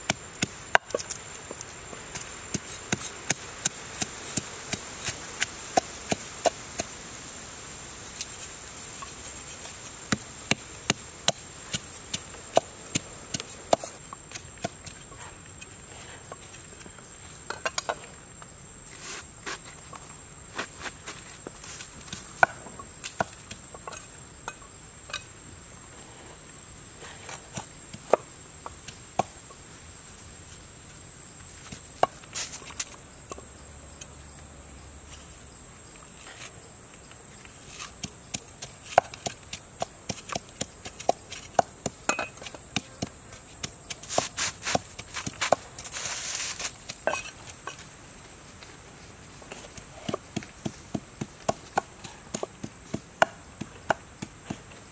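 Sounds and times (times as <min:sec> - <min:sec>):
high insect buzz: 0:16.3 - 0:54.9.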